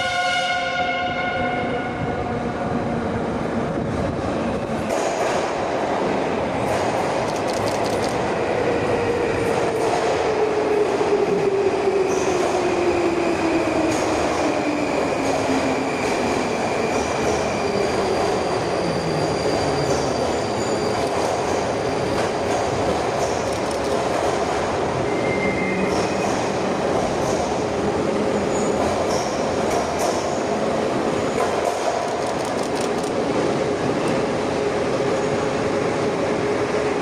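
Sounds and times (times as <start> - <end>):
train wheels rumbling on rails: 0.0 - 37.0
high wheel squeal: 17.6 - 21.1, 25.0 - 26.4.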